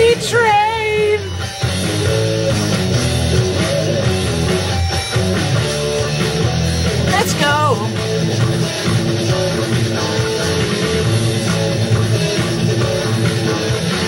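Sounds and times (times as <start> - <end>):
instrumental rock music: 0.0 - 14.0
person singing: 7.1 - 8.0.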